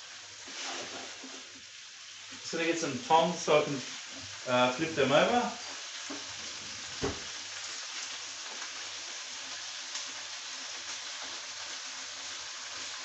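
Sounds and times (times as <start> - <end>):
prawns sizzling in a frying pan: 0.0 - 13.0
knock: 7.0 - 7.3.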